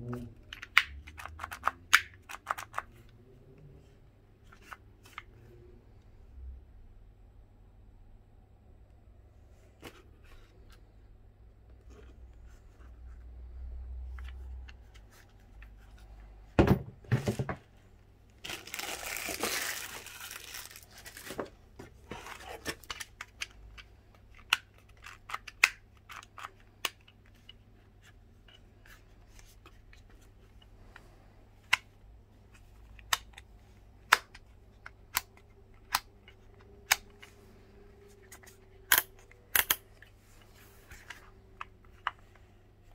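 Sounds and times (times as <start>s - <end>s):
packaging tearing: 18.4s - 21.4s.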